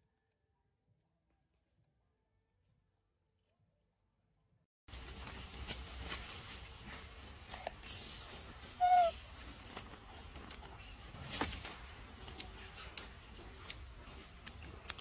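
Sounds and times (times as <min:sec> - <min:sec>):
animal call: 0:08.7 - 0:09.6.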